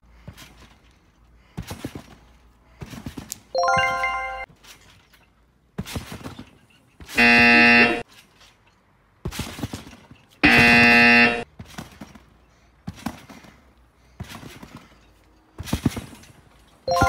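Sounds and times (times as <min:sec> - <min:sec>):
bouncing on a trampoline: 0:00.0 - 0:17.0
electronic buzzer: 0:07.2 - 0:08.0, 0:10.4 - 0:11.4.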